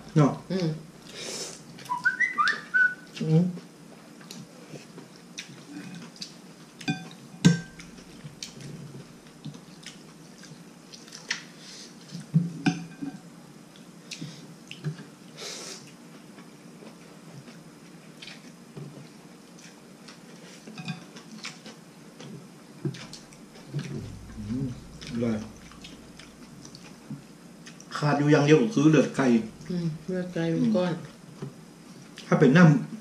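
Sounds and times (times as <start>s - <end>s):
chopsticks and spoon clinking bowl: 6.8s - 8.0s, 20.8s - 21.2s.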